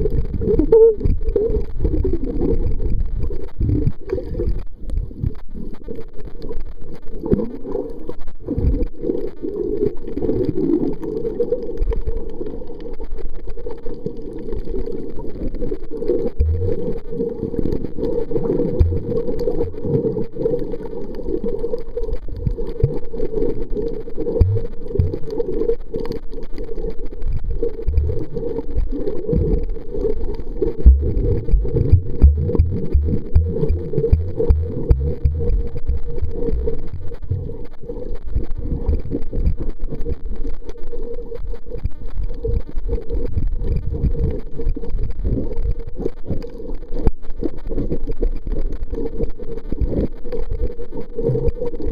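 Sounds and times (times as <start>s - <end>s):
muffled underwater water rumble: 0.0s - 51.9s
low knocks: 30.9s - 36.7s.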